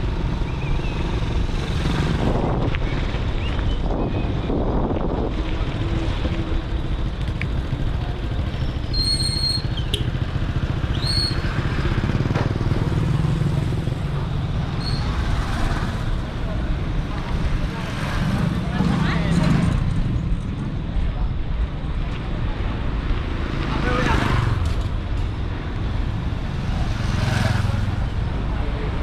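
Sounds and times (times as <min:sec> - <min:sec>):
bike road rumble: 0:00.0 - 0:29.0
wind on microphone: 0:01.4 - 0:06.7.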